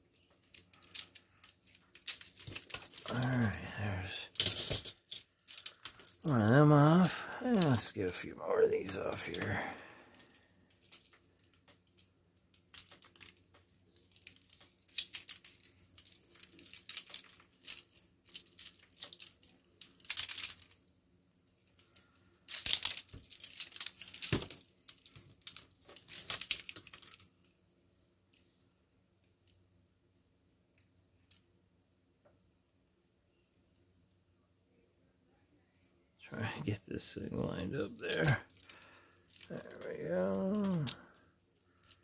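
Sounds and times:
handcuffs clinking and rattling: 0.1 - 20.9, 21.5 - 28.8, 37.7 - 42.0.

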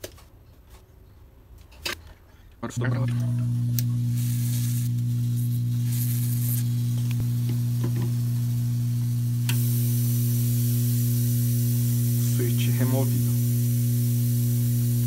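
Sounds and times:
electrical mains hum: 2.6 - 15.0
hiss: 3.8 - 15.0.

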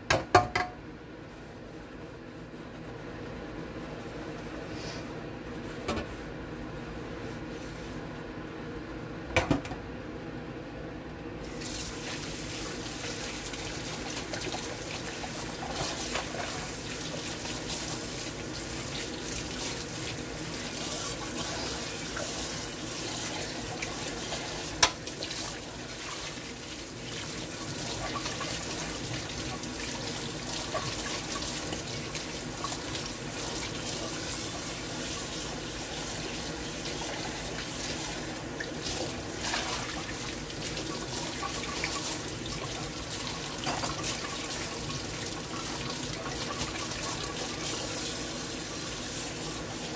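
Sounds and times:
tap water running into sink: 11.6 - 49.9.

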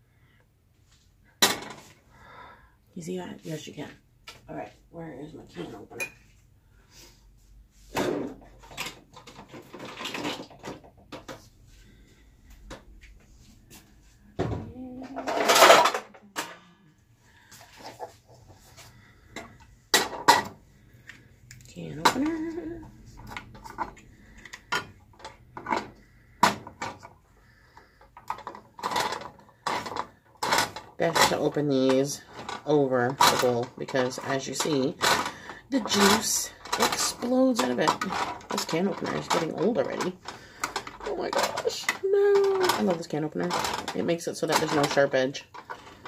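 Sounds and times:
rummaging rattle in drawer: 7.9 - 11.4, 15.0 - 16.5, 21.8 - 26.0, 28.2 - 46.0.

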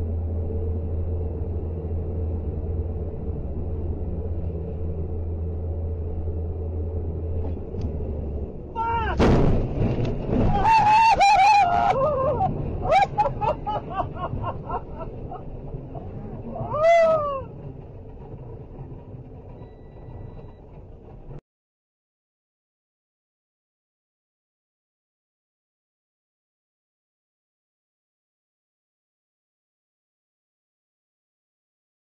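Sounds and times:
truck engine drone: 0.0 - 21.4.

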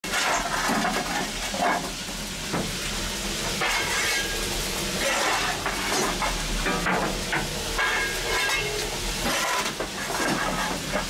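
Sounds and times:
shovel scraping coal: 0.0 - 1.9, 3.6 - 6.8, 7.8 - 11.0
coal lumps clinking: 0.0 - 2.1, 3.4 - 11.0
steam locomotive hissing: 0.3 - 11.0.

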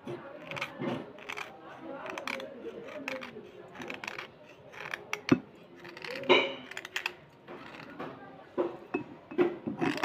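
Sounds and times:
knife scraping slate pencils: 0.0 - 10.0.

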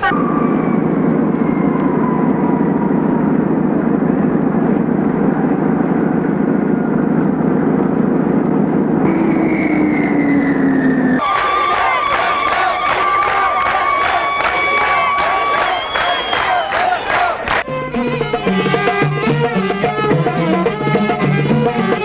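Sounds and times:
jet engines roaring and whining: 0.0 - 22.0.

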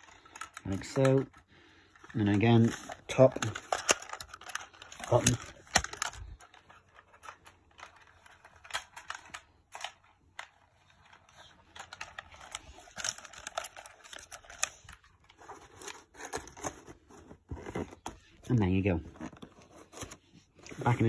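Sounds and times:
handling clicks taps and scrapes: 0.0 - 18.5.

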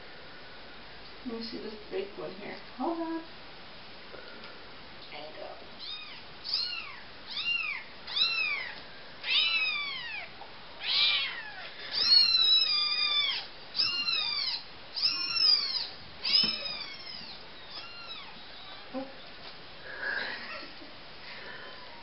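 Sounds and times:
kitten mewing: 5.8 - 19.1.

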